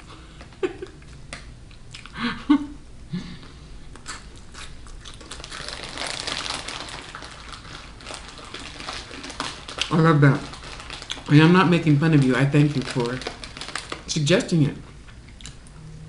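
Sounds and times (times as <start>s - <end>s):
crunching and chewing snack: 3.9s - 14.2s
snack bag rustling: 4.1s - 14.6s.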